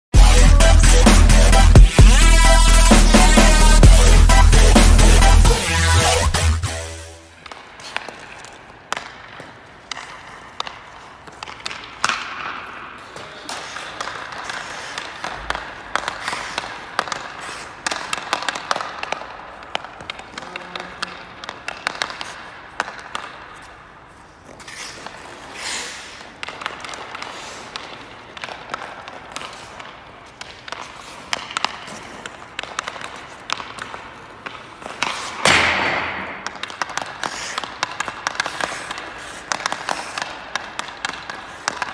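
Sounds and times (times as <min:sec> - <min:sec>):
skate blades scraping ice: 0:00.5 - 0:41.9
hockey stick striking pucks: 0:07.2 - 0:41.9.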